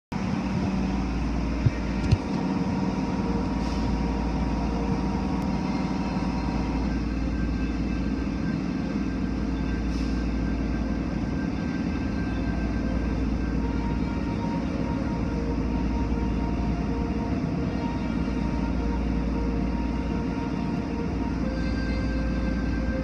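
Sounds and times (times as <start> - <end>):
car wash machinery rumbling: 0.1 - 23.0.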